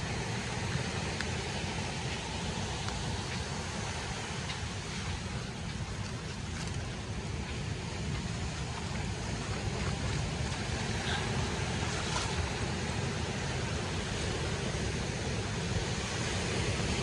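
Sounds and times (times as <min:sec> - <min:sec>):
sea surf: 0:00.0 - 0:17.0
wind: 0:00.0 - 0:17.0
wind buffeting the microphone: 0:00.0 - 0:17.0.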